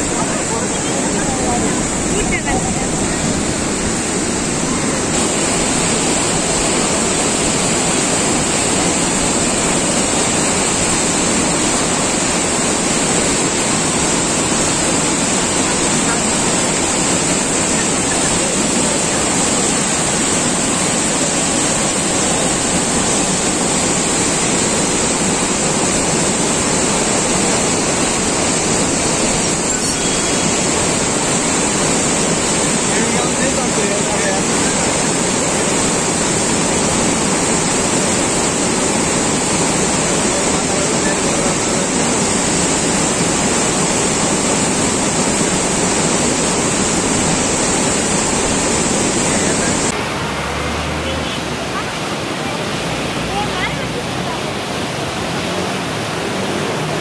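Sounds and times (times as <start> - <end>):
flooded river rushing: 0.0 - 57.0.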